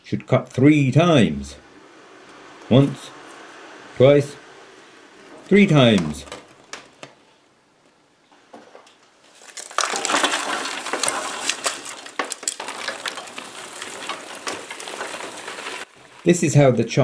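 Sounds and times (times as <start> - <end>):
charcoal clattering into steel hopper: 9.3 - 17.0.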